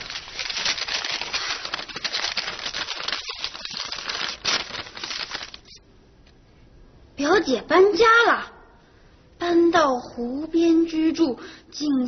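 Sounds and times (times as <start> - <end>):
dense crackling rattling noise: 0.0 - 5.8.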